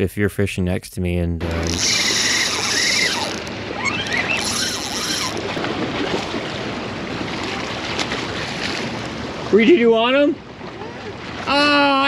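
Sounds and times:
high squeaks: 1.5s - 5.5s
seawater splashing against rocks: 1.7s - 9.6s.

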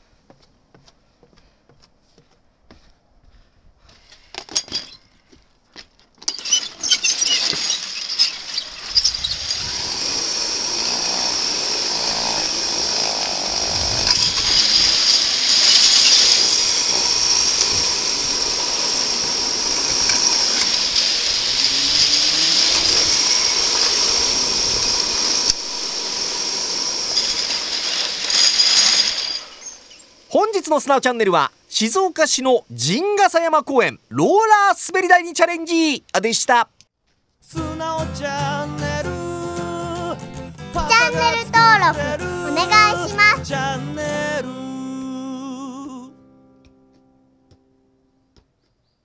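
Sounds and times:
steady high whine: 9.5s - 28.3s.

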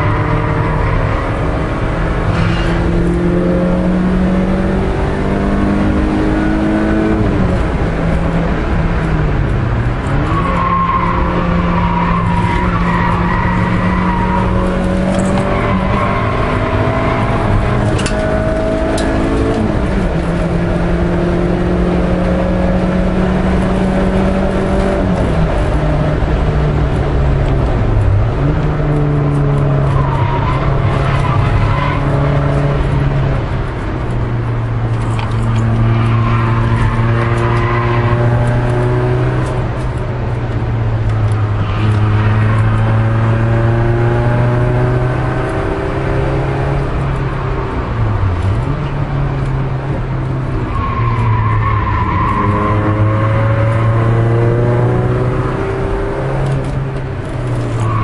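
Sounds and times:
car engine running hard: 0.0s - 58.0s.

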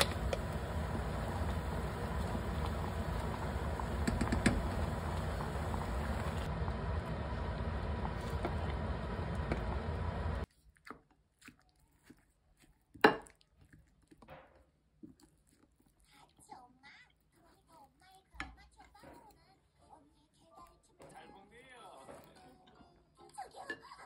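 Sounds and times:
gas stove hiss and hum: 0.0s - 10.5s
spatula stirring a pot: 0.0s - 11.0s
utensil tapping on a plate: 4.0s - 4.6s.

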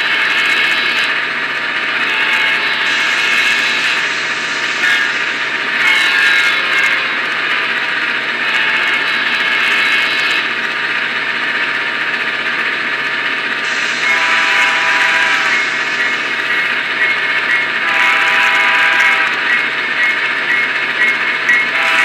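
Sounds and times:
diesel locomotive engine through small speaker: 0.0s - 22.0s
steady higher tones chord: 1.8s - 8.4s, 13.6s - 19.4s.

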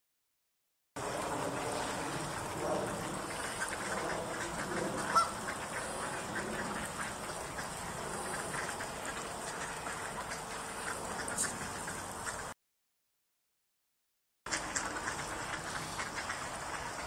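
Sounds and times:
geese honking: 1.7s - 12.5s, 14.5s - 17.0s.

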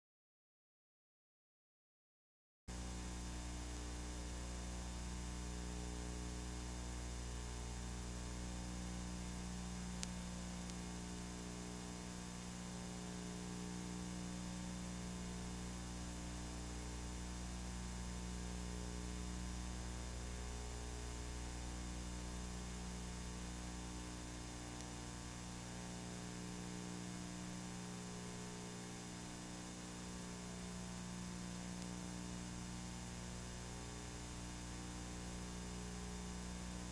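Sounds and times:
electrical mains hum: 2.7s - 36.9s
faint click: 9.5s - 11.0s, 31.5s - 32.0s.

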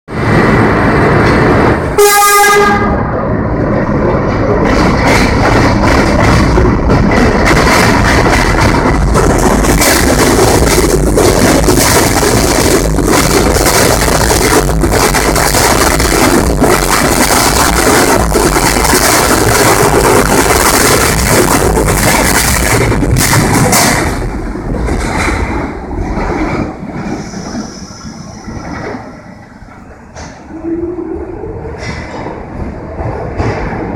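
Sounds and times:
subway train rumbling: 0.1s - 33.9s
train horn blast: 2.0s - 3.1s.

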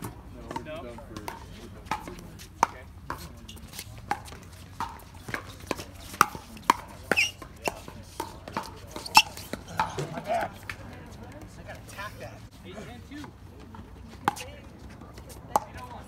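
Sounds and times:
pickleball paddle hits: 1.2s - 10.8s.

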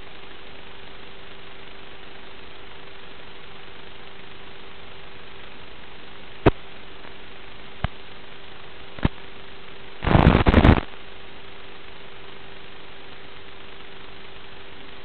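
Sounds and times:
faint hum: 0.0s - 15.0s
static hiss: 0.0s - 15.0s
crackling burst: 10.0s - 11.0s.

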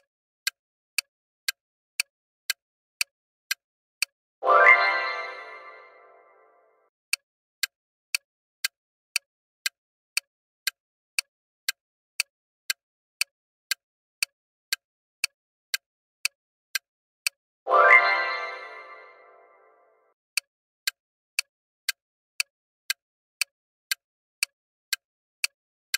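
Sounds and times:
bright pitched sound effect: 4.4s - 6.4s, 17.7s - 19.6s
countdown timer ticking: 4.4s - 6.7s, 17.7s - 19.9s.

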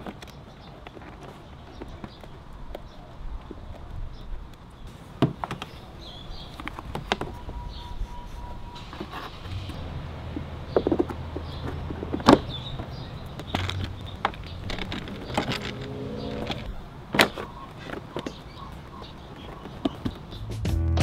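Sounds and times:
sharp plastic clicks and knocks: 10.3s - 20.4s.

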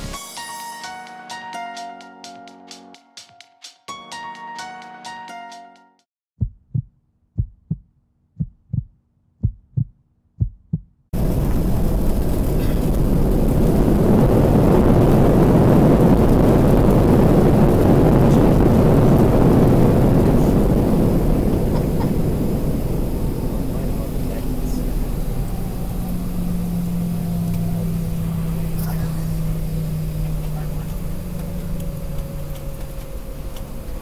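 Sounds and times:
heartbeat thumps: 6.4s - 11.0s
jet airliner cabin noise: 11.2s - 34.0s.

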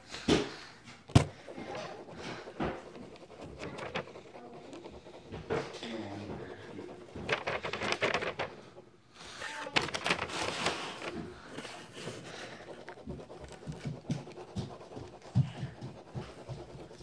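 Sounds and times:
soft knocks on paper: 1.1s - 8.5s, 11.0s - 17.0s
marker scribbling on paper: 1.1s - 17.0s.

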